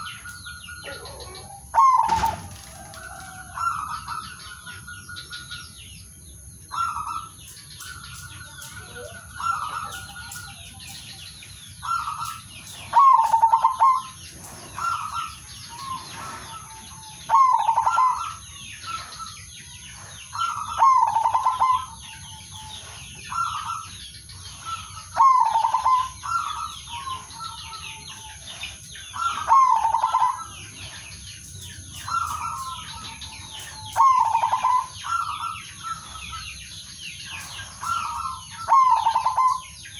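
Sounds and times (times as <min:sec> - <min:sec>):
dove cooing: 0:00.0 - 0:04.8, 0:08.6 - 0:10.9, 0:11.8 - 0:31.1, 0:32.0 - 0:36.5, 0:37.3 - 0:39.8
high bird chirps: 0:03.4 - 0:39.9.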